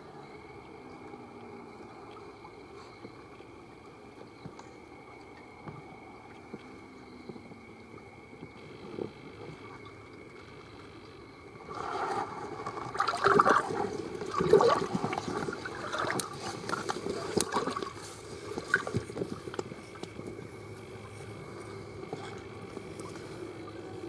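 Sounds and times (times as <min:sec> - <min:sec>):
river water gurgling and sloshing: 0:00.0 - 0:24.0.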